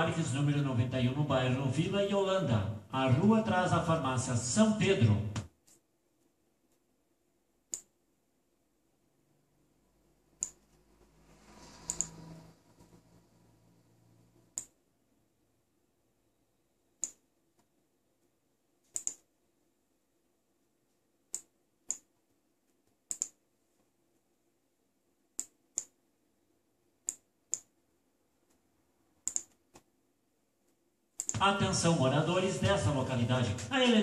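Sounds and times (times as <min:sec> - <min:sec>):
computer mouse button clicking: 0:07.7 - 0:07.9, 0:10.4 - 0:10.8, 0:11.8 - 0:12.2, 0:14.5 - 0:14.8, 0:17.0 - 0:17.2, 0:18.9 - 0:19.2, 0:23.1 - 0:23.4, 0:25.4 - 0:26.0, 0:27.0 - 0:27.7, 0:29.2 - 0:29.9, 0:31.2 - 0:31.4.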